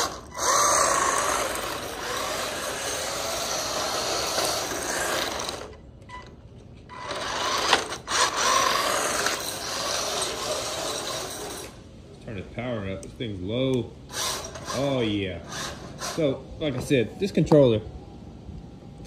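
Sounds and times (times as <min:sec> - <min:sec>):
toy car electric motor whining: 0:00.0 - 0:05.8, 0:06.9 - 0:11.8, 0:14.1 - 0:16.4.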